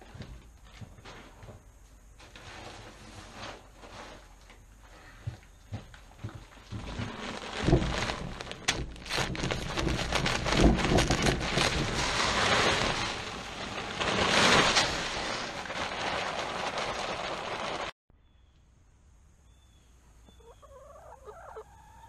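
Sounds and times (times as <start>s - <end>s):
plastic bag crinkling: 6.6s - 18.0s
feed pellets pouring into metal tub: 6.7s - 17.9s.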